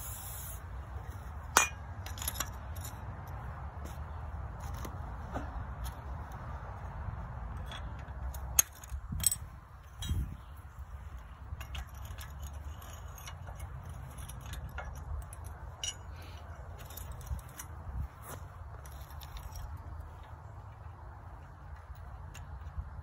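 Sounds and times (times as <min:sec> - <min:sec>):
light metal clinks and clicks: 0:11.1 - 0:17.8.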